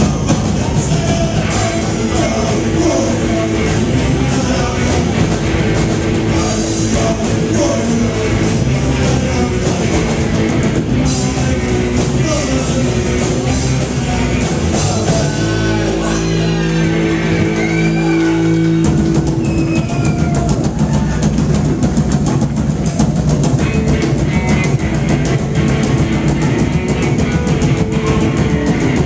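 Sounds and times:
man singing lead vocal: 0:00.0 - 0:18.3
bass guitar: 0:00.0 - 0:29.0
distorted electric guitars: 0:00.0 - 0:29.0
drum kit: 0:00.0 - 0:29.0.

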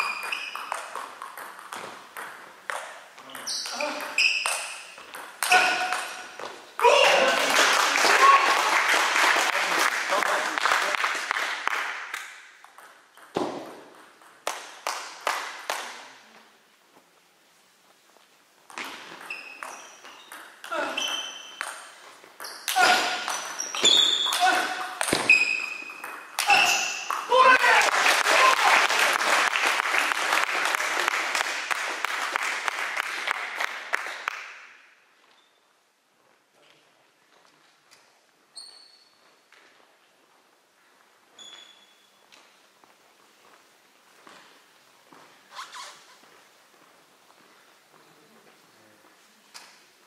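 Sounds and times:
table tennis ball bouncing: 0:00.0 - 0:07.3, 0:12.1 - 0:15.9, 0:18.7 - 0:27.4
clapping: 0:07.3 - 0:12.3, 0:27.5 - 0:34.6.

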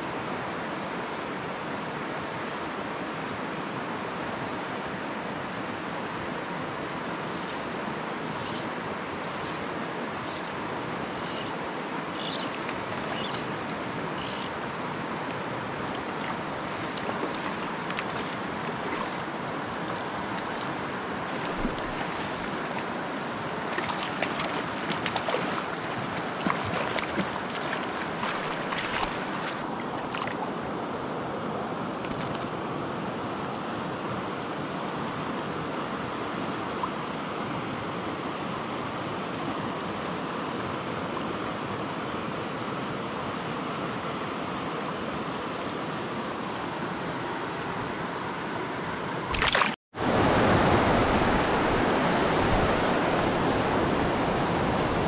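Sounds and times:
stream running over rocks: 0:00.1 - 0:38.0, 0:49.2 - 0:55.0
whitewater rapids rushing: 0:06.8 - 0:30.7
small clicks and splashes: 0:15.9 - 0:19.2, 0:23.7 - 0:30.4, 0:32.0 - 0:32.5, 0:49.3 - 0:49.8.

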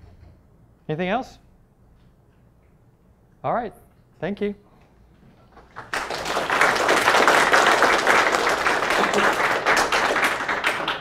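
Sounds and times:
audience applause: 0:05.6 - 0:11.0.

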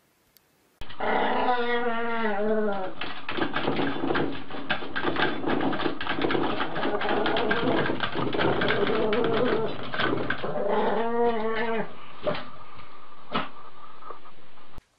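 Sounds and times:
dog whining: 0:00.8 - 0:03.0, 0:06.6 - 0:12.0
toilet paper roll rattling: 0:02.7 - 0:11.4.

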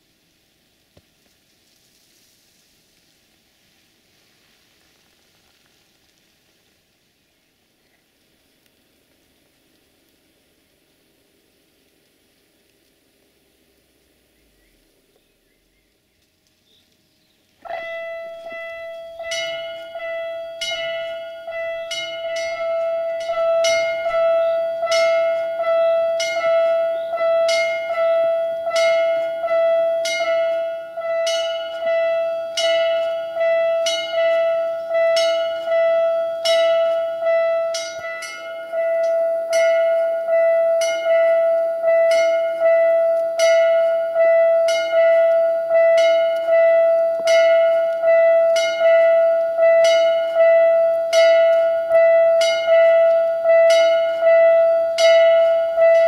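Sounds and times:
level crossing bell ringing: 0:17.7 - 0:56.0.

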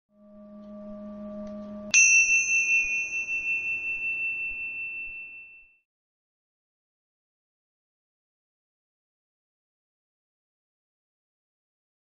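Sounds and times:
low humming tone: 0:00.1 - 0:05.6
bright bell-like chime: 0:00.2 - 0:05.9.

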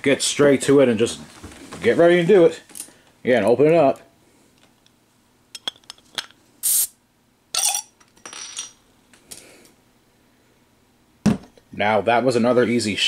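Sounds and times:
hiss of escaping gas: 0:06.6 - 0:07.0.

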